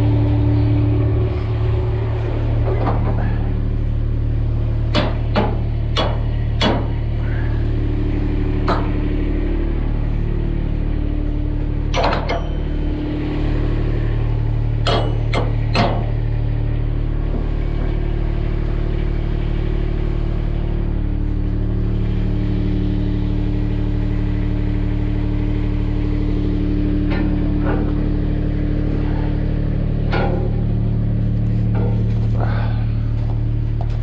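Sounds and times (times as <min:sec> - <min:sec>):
large engine droning: 0:00.0 - 0:34.0
sharp metal clanks: 0:11.9 - 0:12.8, 0:14.8 - 0:16.1.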